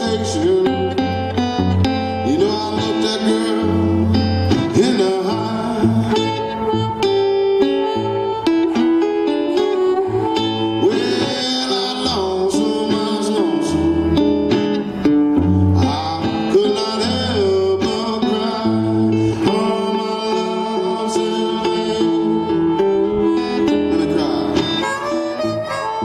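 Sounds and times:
harmonica bending notes: 0.0 - 26.0
resonator guitar bass notes: 0.0 - 26.0.

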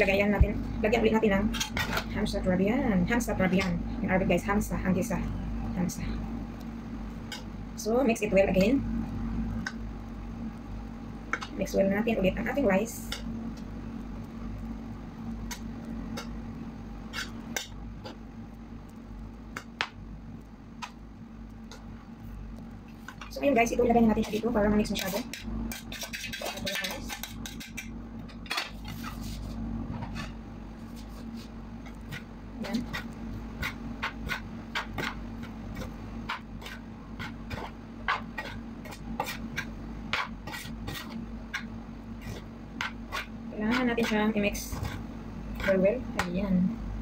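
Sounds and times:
steady low hum: 0.0 - 47.0
metal spoon stirring rice in pot: 24.2 - 29.5, 30.9 - 45.0.

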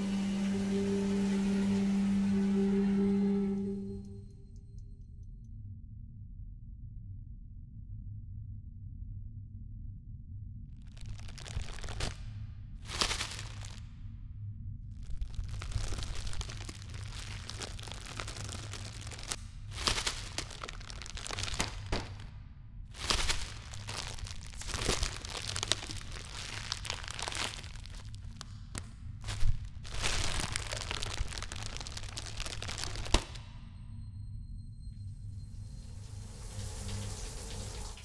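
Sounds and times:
steady low hum: 0.0 - 10.7
sharp cracks: 23.0 - 33.6.

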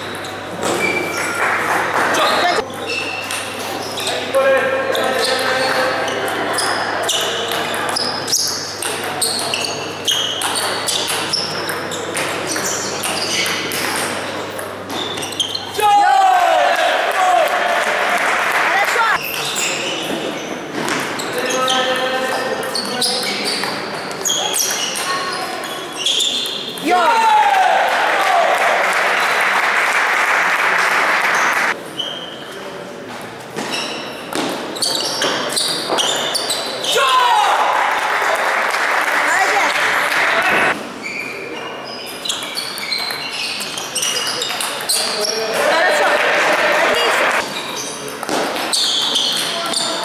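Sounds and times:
chatter: 0.0 - 15.8, 16.7 - 27.1, 37.9 - 50.0
short high squeaks: 2.2 - 4.2
spectators applauding: 17.1 - 19.2, 27.8 - 31.8, 37.8 - 40.8, 45.6 - 47.4.

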